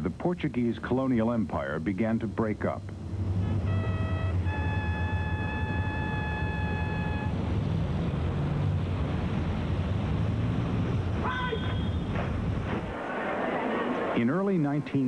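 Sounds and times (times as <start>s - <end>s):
steady low rumble: 0.0s - 11.4s
bugle notes: 3.3s - 7.5s.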